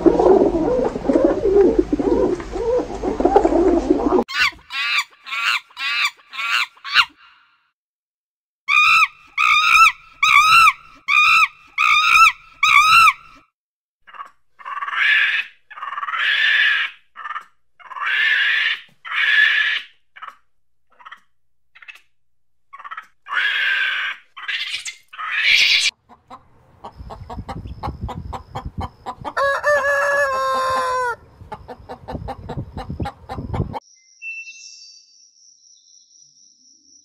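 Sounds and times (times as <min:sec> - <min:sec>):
chickens clucking: 0:00.0 - 0:06.4, 0:17.2 - 0:18.1, 0:21.0 - 0:21.2, 0:22.8 - 0:23.2, 0:25.8 - 0:33.8
rooster crowing: 0:29.3 - 0:31.2.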